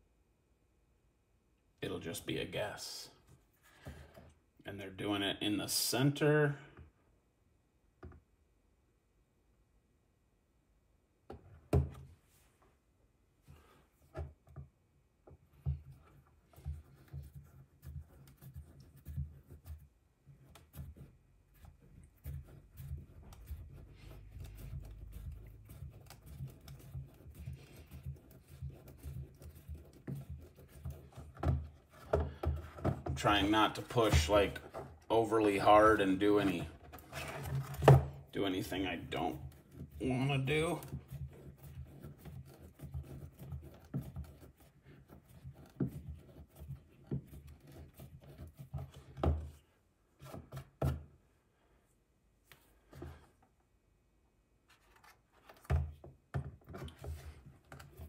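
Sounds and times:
reamer scraping plastic: 22.2 - 48.9.

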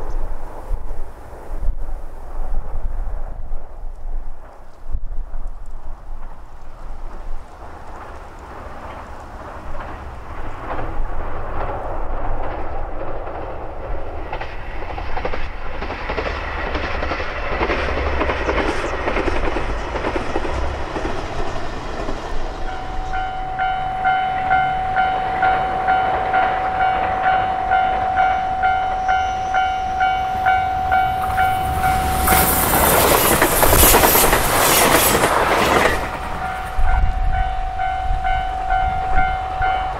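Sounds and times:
train rumbling over bridge: 0.0 - 39.9
level-crossing alarm ringing: 22.6 - 39.9.

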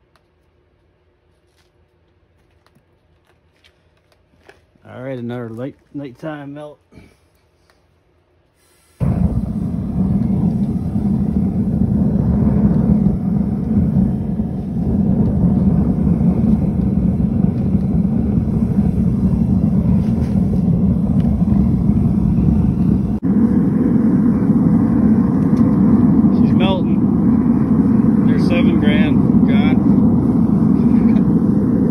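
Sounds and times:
gas burner rushing: 8.6 - 31.9.

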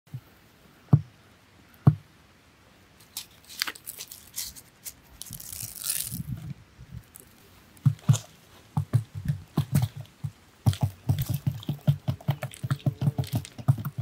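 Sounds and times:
dull thumps: 0.9 - 1.2, 1.8 - 2.1, 7.8 - 14.0
grain pattering on cardboard: 3.0 - 6.4, 7.0 - 14.0.

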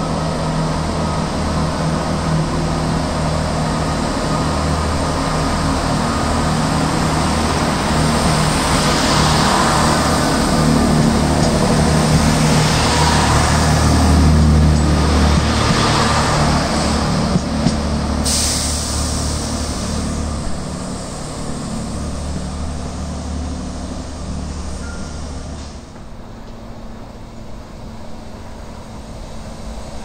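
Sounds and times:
train engine drone: 0.0 - 30.0
sudden hiss: 18.2 - 21.6.

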